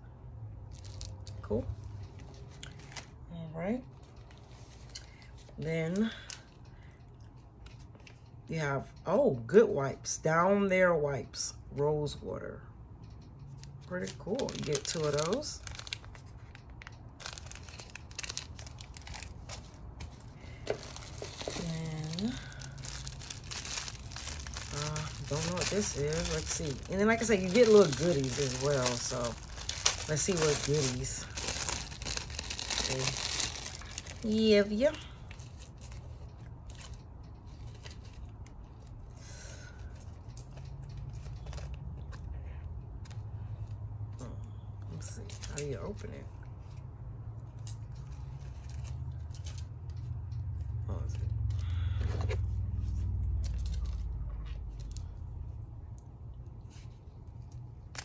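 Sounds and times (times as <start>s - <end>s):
steady low hum: 0.0s - 58.0s
packaging crinkling and rustling: 0.7s - 3.2s, 13.5s - 39.1s, 39.9s - 42.3s, 45.2s - 46.0s, 47.4s - 50.0s.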